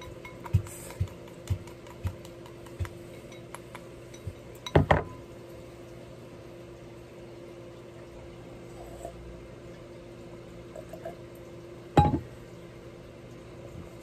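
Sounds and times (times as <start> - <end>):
bowl clattering onto table: 12.0 - 12.3.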